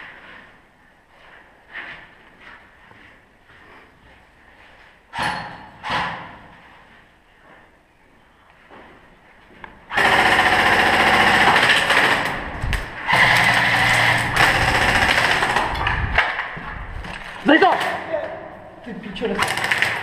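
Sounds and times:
airsoft rifle firing bursts: 9.9s - 12.4s, 13.0s - 15.8s, 19.4s - 20.0s.

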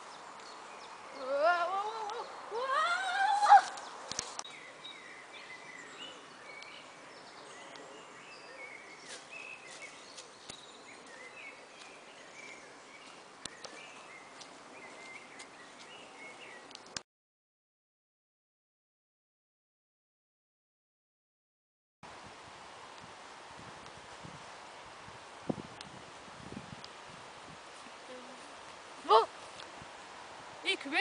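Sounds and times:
small birds chirping: 0.0s - 17.0s
person's rising cry: 1.2s - 3.8s.

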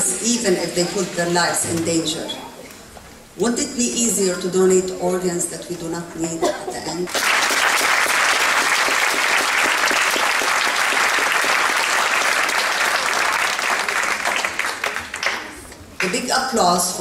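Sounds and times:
audience applauding: 7.1s - 16.1s.

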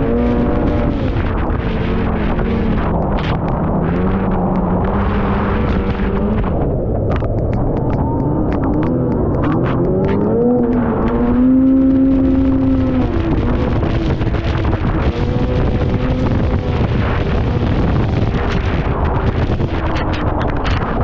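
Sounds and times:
snowmobile engine running: 0.0s - 21.0s
wind noise on microphone: 0.0s - 21.0s.

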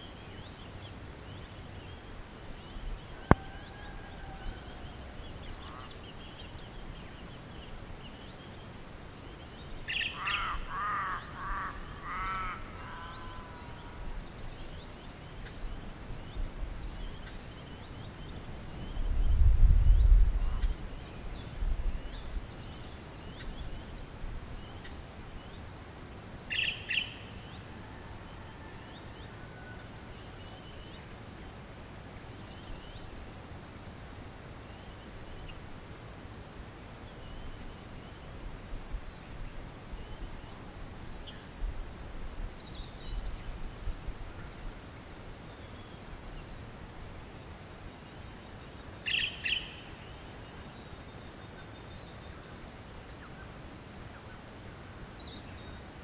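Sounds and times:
small birds twittering: 0.0s - 25.7s, 26.4s - 31.1s, 34.6s - 35.7s, 36.8s - 42.0s, 42.6s - 56.0s
large bird loud calls: 9.9s - 14.0s
wind rumble on microphone: 18.2s - 22.6s, 38.4s - 45.3s.

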